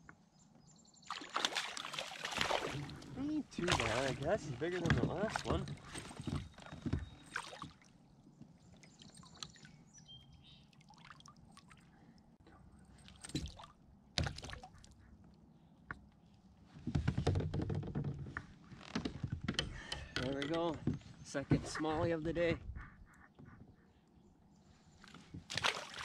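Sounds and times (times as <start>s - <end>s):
water dripping and trickling: 10.6s - 11.9s
handling clicks and knocks: 17.4s - 21.1s.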